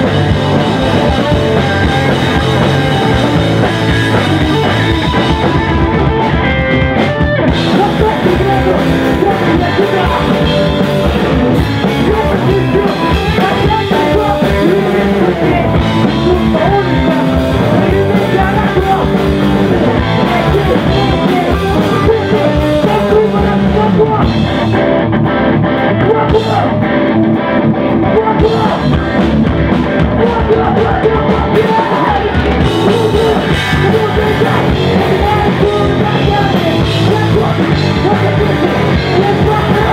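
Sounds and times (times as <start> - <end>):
person singing into microphone: 0.0 - 24.7, 25.9 - 27.0, 27.9 - 29.3, 29.9 - 39.9
drum kit: 0.0 - 39.9
electric bass: 0.0 - 39.9
electric guitar: 0.0 - 39.9
punk rock band playing live: 0.0 - 39.9.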